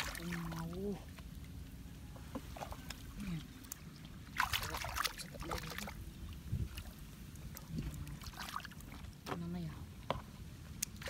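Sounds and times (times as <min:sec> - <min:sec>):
hands splashing in water: 0:03.6 - 0:06.0.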